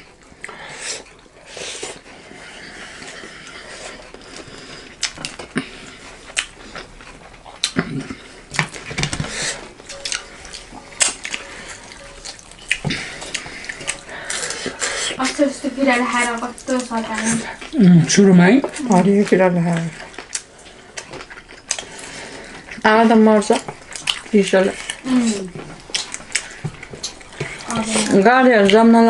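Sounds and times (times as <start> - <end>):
chewing: 0.0 - 29.0.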